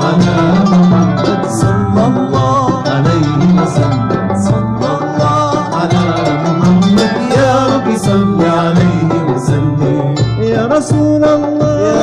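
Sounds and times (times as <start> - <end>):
live ensemble music: 0.0 - 12.0.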